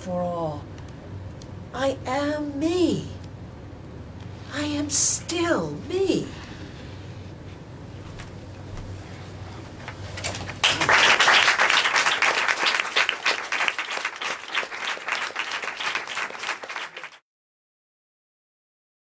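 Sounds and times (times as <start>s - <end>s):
audience applauding: 10.4s - 17.2s.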